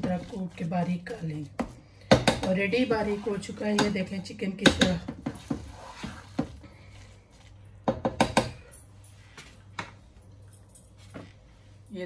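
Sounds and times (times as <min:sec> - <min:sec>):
spatula knocking on metal pan: 0:01.6 - 0:02.7, 0:07.8 - 0:08.6.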